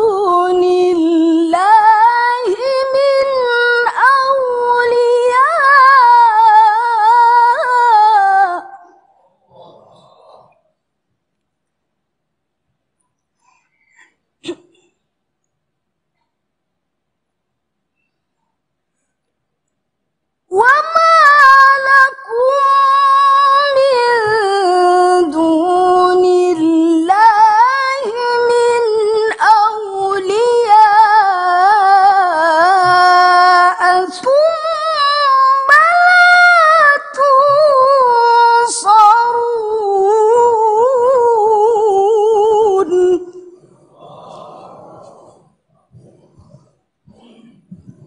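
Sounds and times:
woman reciting melodically: 0.0s - 10.0s, 20.5s - 48.0s.

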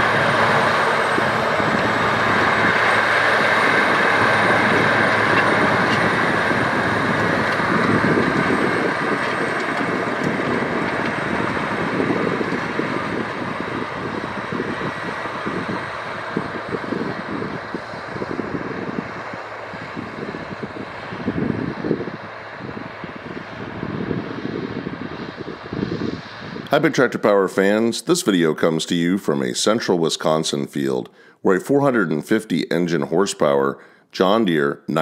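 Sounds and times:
implement rumbling through soil: 0.0s - 26.8s
tractor diesel engine pulling: 0.0s - 35.0s.

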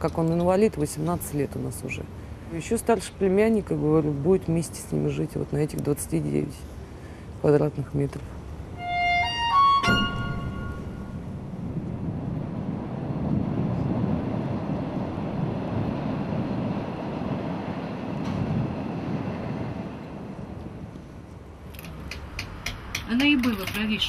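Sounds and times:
train rumbling: 0.0s - 24.0s
bowed string music: 8.8s - 11.4s.

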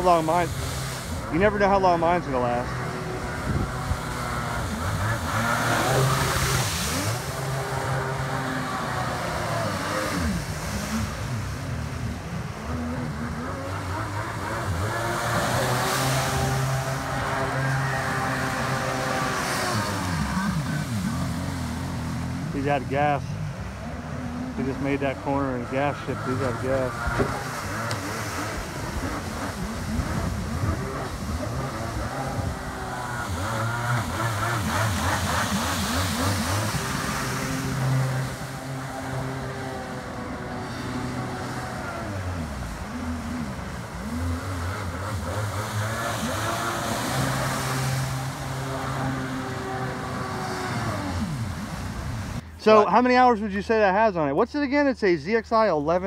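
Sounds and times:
jet ski engine revving: 0.0s - 56.0s.

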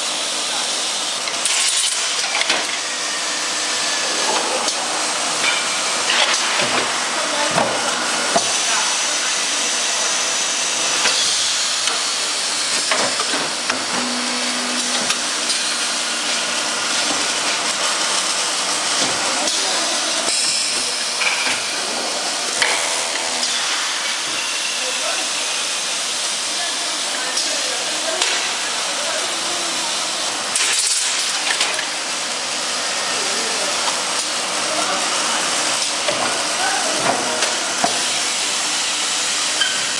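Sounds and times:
pneumatic cutting machine hissing: 0.7s - 39.9s
pneumatic machine hissing: 7.6s - 26.2s.

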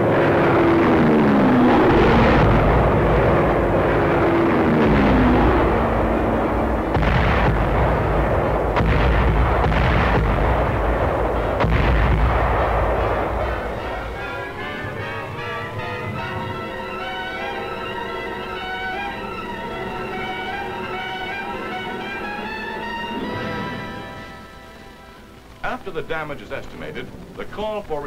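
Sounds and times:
falling plane whine: 0.0s - 8.9s, 9.6s - 25.8s
heavy continuous rumble: 0.0s - 28.0s
sharp blasts: 0.0s - 28.0s.

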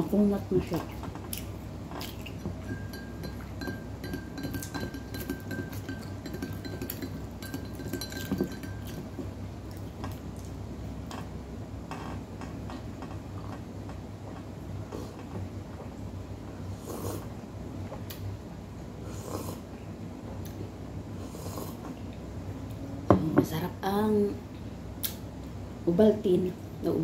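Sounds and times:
chewing: 0.8s - 2.9s
spoon clinking against glass jar: 2.6s - 9.2s.

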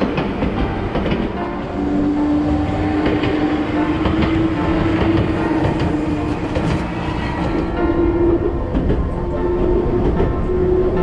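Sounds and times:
train wheels clicking over rail joints: 0.0s - 7.8s
electric train running on rails: 0.0s - 11.0s.

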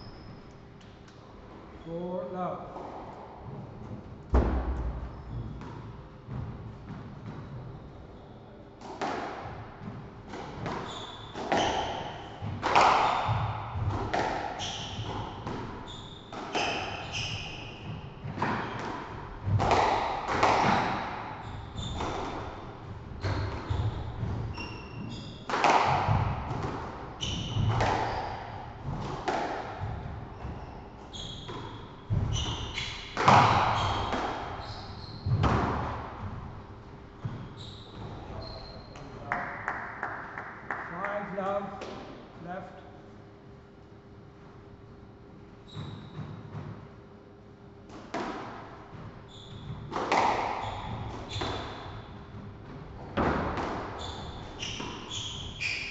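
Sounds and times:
squash ball hitting rackets and walls: 2.2s - 7.9s, 8.8s - 41.2s, 41.8s - 42.3s, 45.6s - 47.0s, 47.7s - 55.9s
shoes squeaking on wooden floor: 10.6s - 13.5s, 14.6s - 18.8s, 21.0s - 26.2s, 29.9s - 35.6s, 37.2s - 39.2s, 45.6s - 46.4s, 49.2s - 52.2s, 53.9s - 55.9s.

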